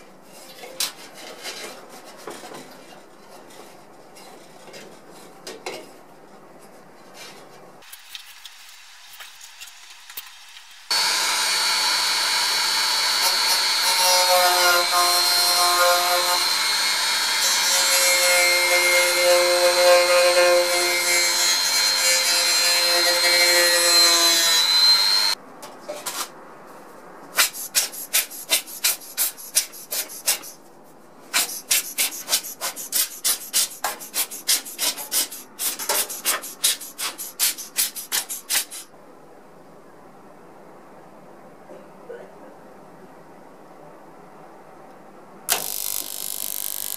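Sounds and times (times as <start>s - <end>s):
rotary tool whining: 10.9s - 17.7s, 45.5s - 46.9s
rubbing strokes: 27.4s - 38.9s.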